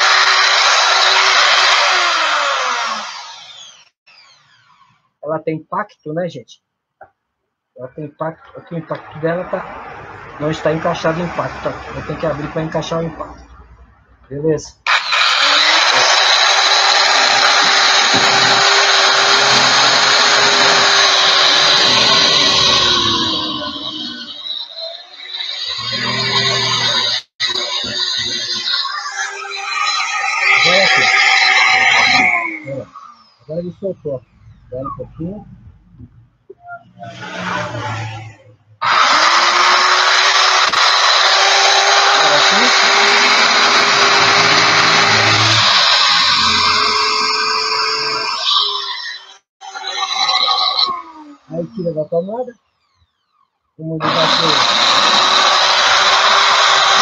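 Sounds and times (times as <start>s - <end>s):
hammer drill boring into wood: 0.0s - 5.0s, 14.9s - 32.8s, 38.8s - 51.0s, 54.0s - 57.0s.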